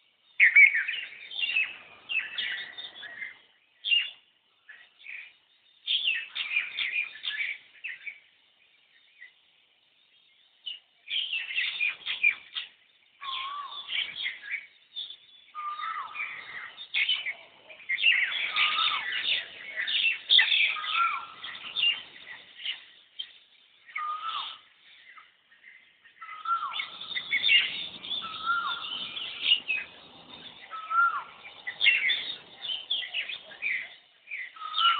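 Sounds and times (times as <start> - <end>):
birds chirping and twittering: 0.0 - 34.9
low whistled bird notes: 0.3 - 8.2, 11.1 - 25.1, 26.1 - 34.9.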